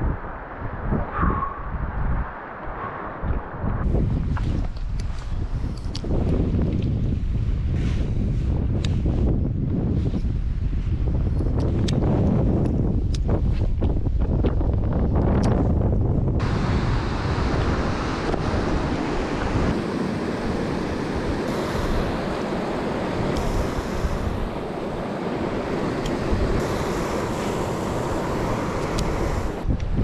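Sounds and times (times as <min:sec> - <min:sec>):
wind buffeting microphone: 0:00.0 - 0:30.0
river rushing over rapids: 0:16.4 - 0:29.6.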